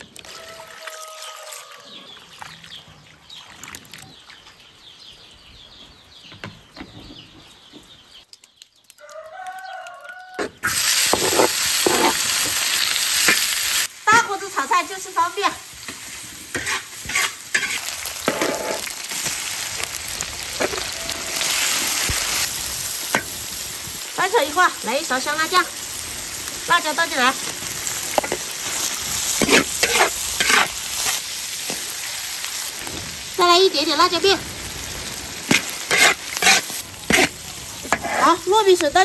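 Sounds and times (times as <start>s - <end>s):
pork sizzling in a wok: 0.0s - 1.9s, 8.9s - 39.0s
rooster crowing: 0.2s - 2.1s, 9.0s - 10.6s, 20.5s - 21.9s
splashing water in a bowl: 0.2s - 4.6s.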